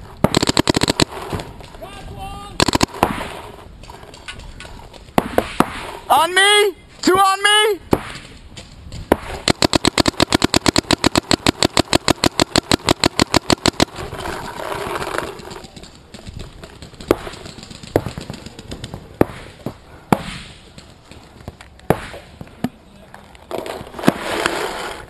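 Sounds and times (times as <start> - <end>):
paintball marker firing shots: 0.2 - 1.6, 2.6 - 3.6, 5.1 - 6.0, 9.1 - 14.2, 16.7 - 20.9, 21.8 - 22.4.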